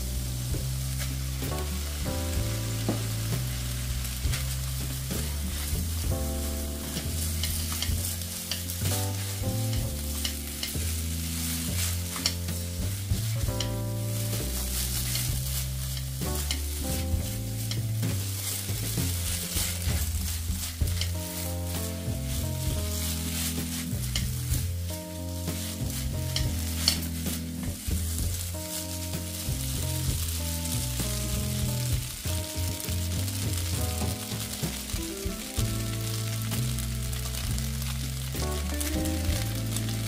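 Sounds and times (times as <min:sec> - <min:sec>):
food sizzling in a pan: 0:00.0 - 0:40.0
low held musical notes: 0:00.0 - 0:40.0
utensil scraping against pan: 0:04.2 - 0:30.1.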